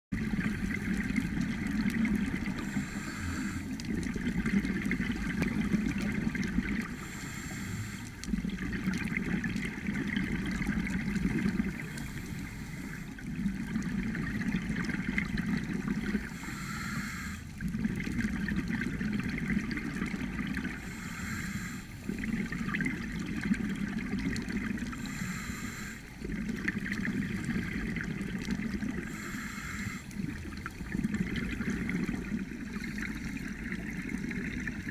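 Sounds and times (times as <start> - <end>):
exhaled bubbles rushing: 0.2 - 7.2, 8.1 - 16.6, 17.4 - 21.0, 22.0 - 25.3, 26.0 - 34.9
diver breathing through regulator: 2.4 - 3.9, 6.8 - 8.3, 11.7 - 13.2, 16.1 - 17.6, 20.7 - 22.2, 24.9 - 26.2, 28.9 - 30.2.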